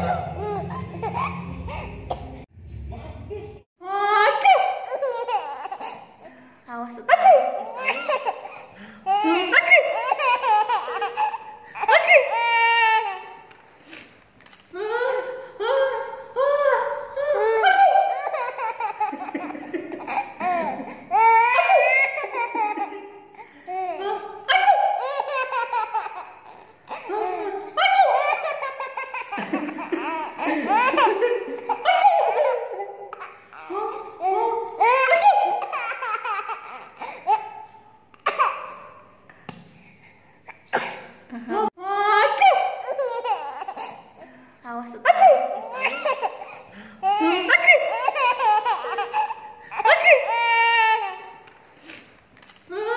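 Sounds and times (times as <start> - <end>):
baby laughing: 0.0 - 2.5, 4.4 - 6.2, 7.3 - 13.5, 17.2 - 38.9, 42.7 - 44.2, 45.2 - 51.4.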